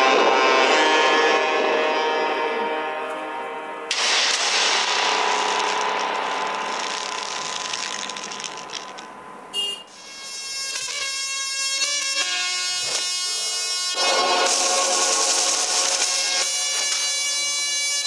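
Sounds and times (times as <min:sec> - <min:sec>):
music with steady pitch: 0:00.0 - 0:03.9
noisy rattling hit: 0:03.9 - 0:09.2, 0:14.0 - 0:16.9.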